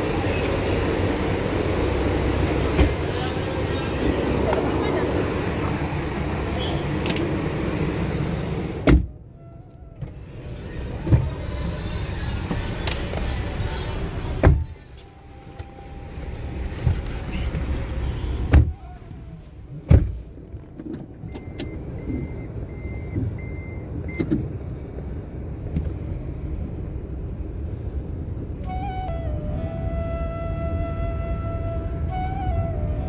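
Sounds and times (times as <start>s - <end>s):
low rumble of idling car: 0.0s - 32.5s
car doors shutting: 8.8s - 9.1s, 16.6s - 19.0s, 19.8s - 24.5s.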